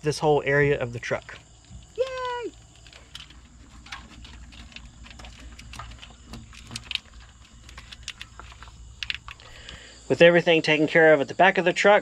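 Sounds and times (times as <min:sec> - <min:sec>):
plastic wire loom clicking and rustling: 0:01.9 - 0:09.5.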